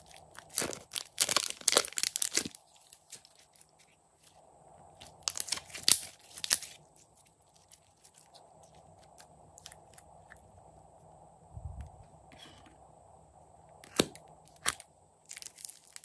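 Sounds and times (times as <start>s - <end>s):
slime crackling and popping: 0.0s - 3.7s, 5.1s - 6.8s, 13.9s - 16.0s.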